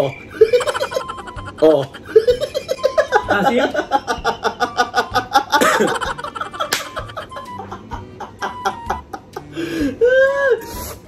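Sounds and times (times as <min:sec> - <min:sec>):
man laughing hard: 0:00.3 - 0:10.6.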